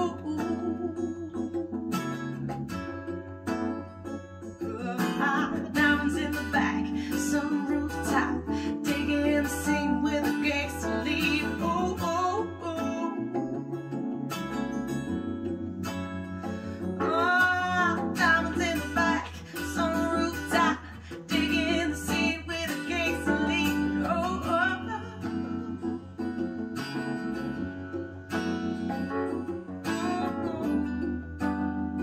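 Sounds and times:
song over loudspeakers: 4.6 - 13.5, 17.0 - 26.2.

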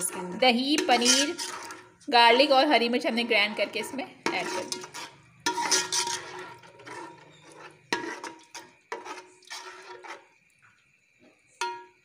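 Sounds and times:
spoon knocking and scraping pot: 0.0 - 2.1, 3.4 - 10.3, 11.6 - 12.0
spoon stirring wet mixture: 0.0 - 10.7.

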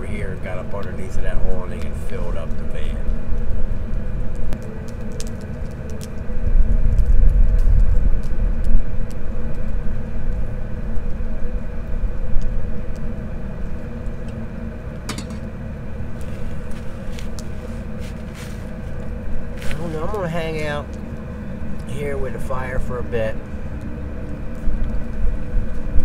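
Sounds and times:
wind buffeting microphone: 0.0 - 14.6
faint hum: 0.0 - 26.0
metal kettle clack on stove: 15.1 - 15.4.

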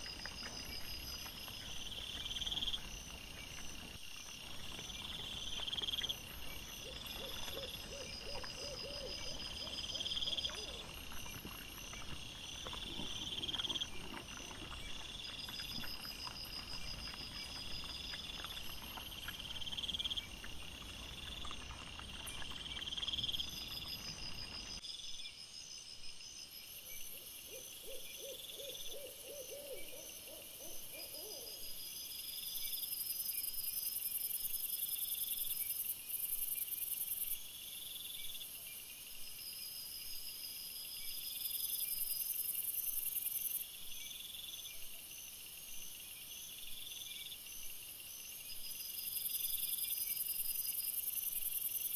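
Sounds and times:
crickets chirping: 0.0 - 51.9
low rapid stuttering insect call: 0.0 - 51.9.

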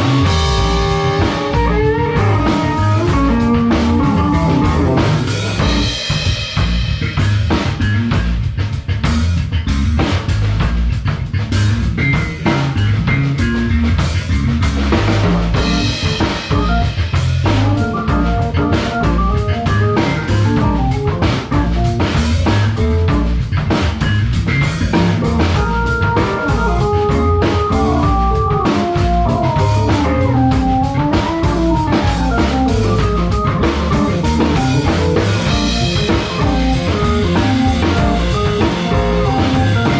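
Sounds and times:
melodic lead line: 0.0 - 7.0, 15.5 - 23.6, 24.6 - 39.9
drum kit: 0.0 - 39.9
electric bass: 0.0 - 39.9
electric guitar: 0.0 - 39.9
keyboard: 0.0 - 39.9.

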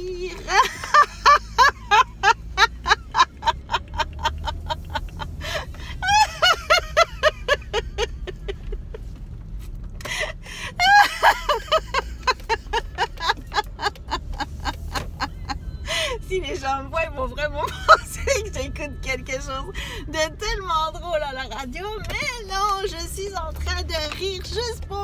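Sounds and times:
car rumble inside cabin: 0.0 - 25.0
woman laughing in bursts: 0.4 - 9.2, 10.0 - 16.2.

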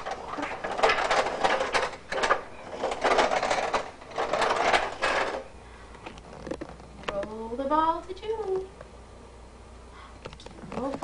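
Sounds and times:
toy truck rattling on floor: 0.0 - 5.5.

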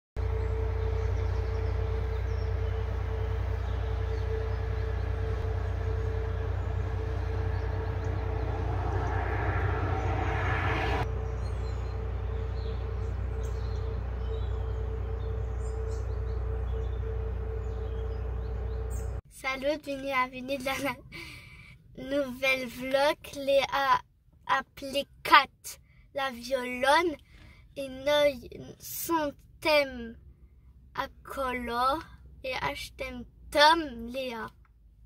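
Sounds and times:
steady hum: 0.2 - 19.2
steady low rumble: 0.2 - 19.2
rushing noise: 5.5 - 13.2
faint bird chirps: 11.2 - 19.2.

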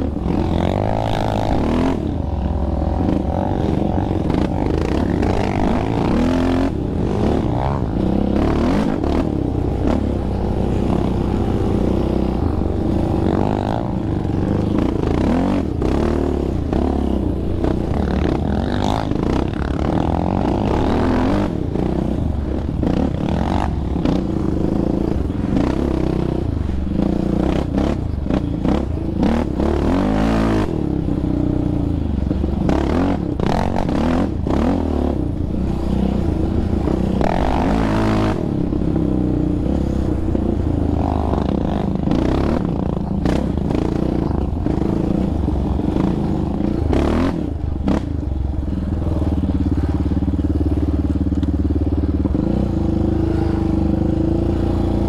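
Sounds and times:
quad engine revving: 0.0 - 26.4, 27.0 - 31.8, 32.4 - 48.1, 49.0 - 55.0.

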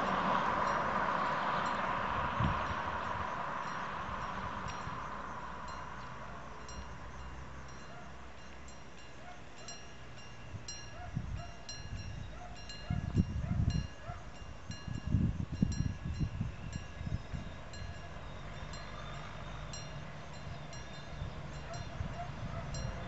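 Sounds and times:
wind gusting on microphone: 0.0 - 7.2, 10.4 - 23.0.

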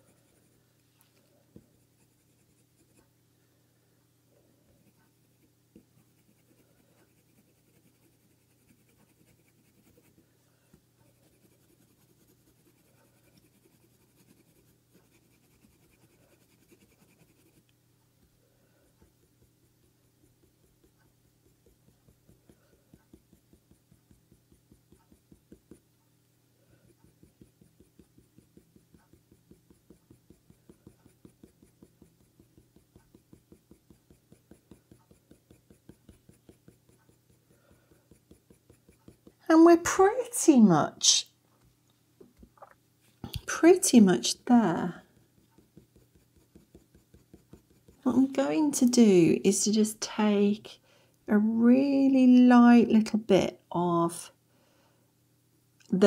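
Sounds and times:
pencil scratching on paper: 0.0 - 0.6, 1.6 - 3.1, 4.8 - 10.3, 11.0 - 17.7, 18.8 - 25.9, 26.7 - 40.2, 43.4 - 49.0
low steady hum: 0.0 - 56.0.

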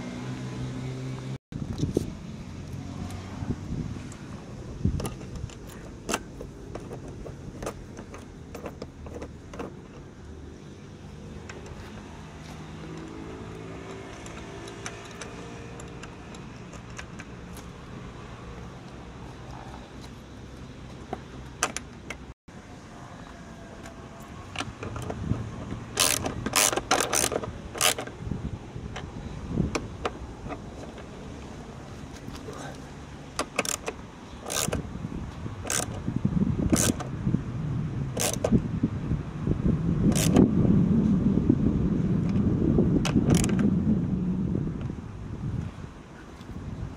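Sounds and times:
low engine hum: 0.0 - 46.9
socket ratchet clicking: 12.9 - 17.4, 26.0 - 28.1, 33.4 - 34.8, 35.6 - 36.0, 36.7 - 37.1, 38.2 - 38.5, 40.1 - 40.4.

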